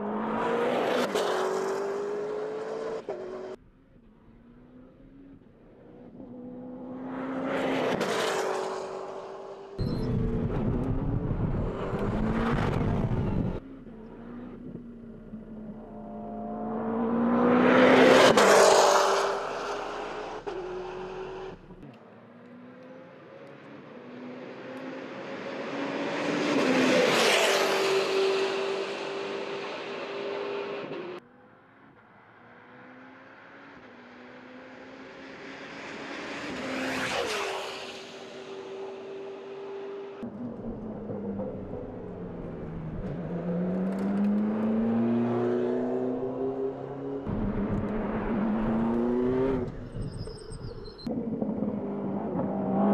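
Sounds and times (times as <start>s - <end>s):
race car engine passing: 15.4s - 21.9s, 32.2s - 50.3s.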